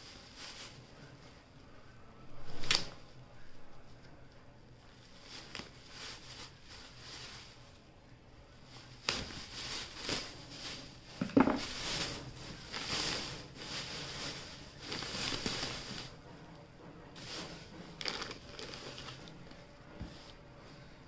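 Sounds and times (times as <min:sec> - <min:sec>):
plastic bags crinkling: 0:00.0 - 0:01.0, 0:04.9 - 0:07.8, 0:08.6 - 0:16.2, 0:17.2 - 0:19.6.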